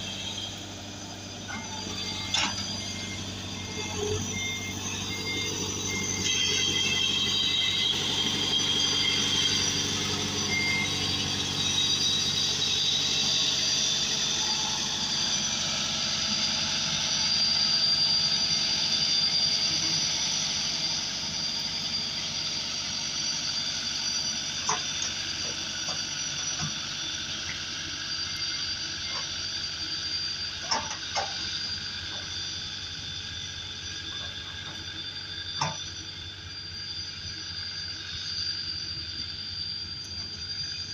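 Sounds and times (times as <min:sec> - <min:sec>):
road roller engine running: 0:00.0 - 0:40.9.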